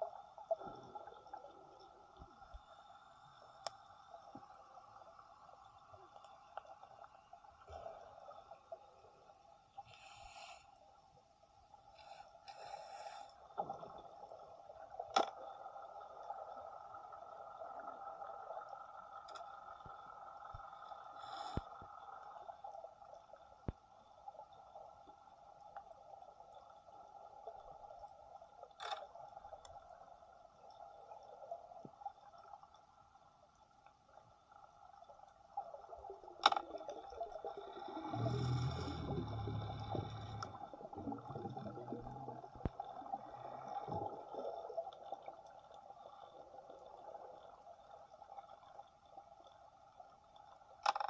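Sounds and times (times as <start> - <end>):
water gurgling and sloshing: 0.0 - 10.4, 11.6 - 51.0
underwater two-toned hum: 34.4 - 45.5.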